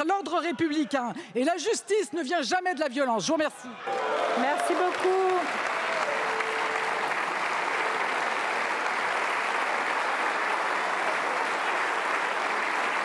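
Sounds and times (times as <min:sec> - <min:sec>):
crowd applauding: 0:03.8 - 0:13.0.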